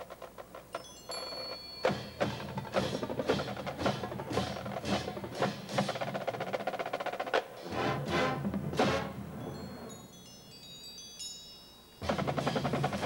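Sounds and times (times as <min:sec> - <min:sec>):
marching band accented hits: 0:01.8 - 0:10.1, 0:12.0 - 0:13.0
held high tone: 0:07.6 - 0:12.1.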